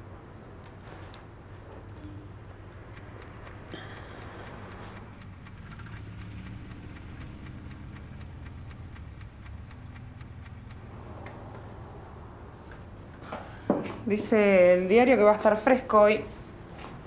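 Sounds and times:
clock ticking quickly: 2.8s - 10.9s.

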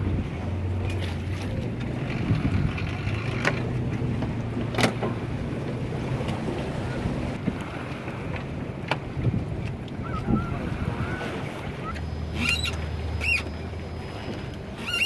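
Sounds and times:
engine running at low speed: 0.0s - 15.0s
wind buffeting microphone: 1.6s - 12.5s.

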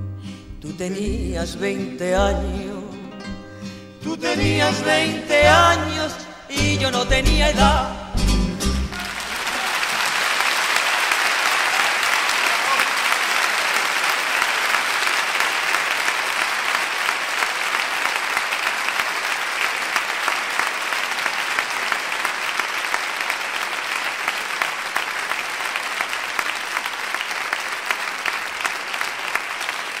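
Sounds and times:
audience applauding: 8.8s - 30.0s.

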